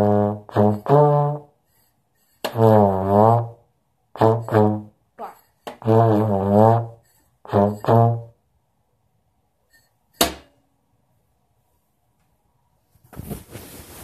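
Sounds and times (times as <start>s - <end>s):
trombone playing low notes: 0.0s - 1.5s, 2.5s - 3.6s, 4.2s - 8.4s.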